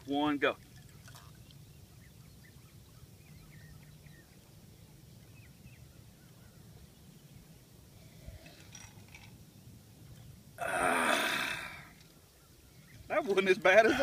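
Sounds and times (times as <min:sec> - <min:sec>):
low steady hum: 0:00.0 - 0:14.0
faint bird chirps: 0:00.9 - 0:10.4, 0:11.9 - 0:13.4.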